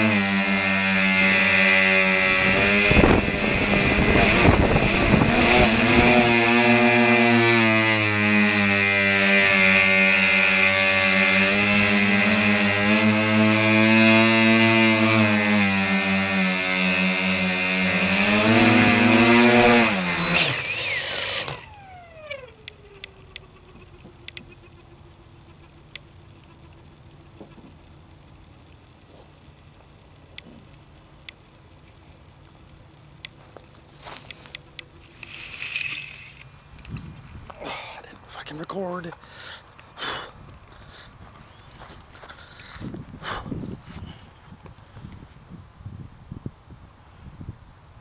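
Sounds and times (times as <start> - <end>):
drone motors whining: 0.0 - 37.6.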